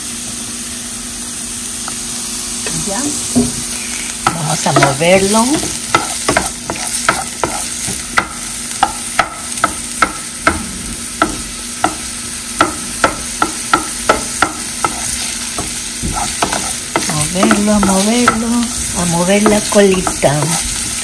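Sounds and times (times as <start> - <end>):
vegetables sizzling in oil: 0.0 - 21.0
wooden spatula scraping a pan: 3.6 - 8.0, 14.4 - 21.0.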